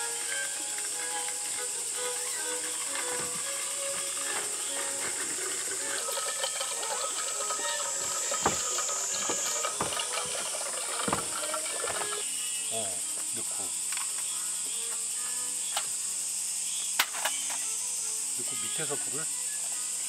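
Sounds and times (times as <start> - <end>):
high-pitched insect chorus: 0.0 - 20.0
handling clicks and knocks: 5.9 - 12.2.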